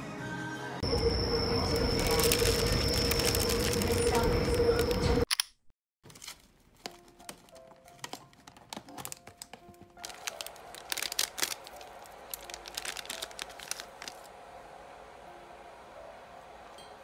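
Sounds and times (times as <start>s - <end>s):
foil sachet crinkling: 1.7s - 4.9s, 6.1s - 14.3s
soft background music: 6.7s - 17.0s.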